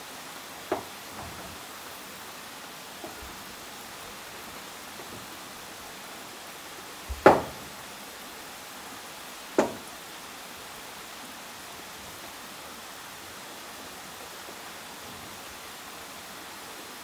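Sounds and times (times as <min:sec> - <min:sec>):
steady hiss: 0:00.0 - 0:17.0
sharp knocks: 0:00.7 - 0:01.6, 0:07.1 - 0:07.7, 0:09.6 - 0:09.9.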